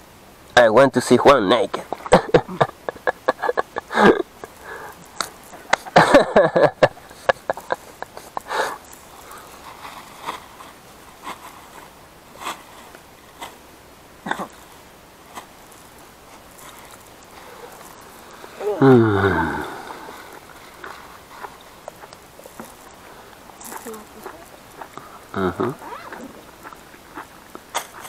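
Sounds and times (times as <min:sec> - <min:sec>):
people laughing: 0:02.0 - 0:04.8, 0:05.6 - 0:08.8.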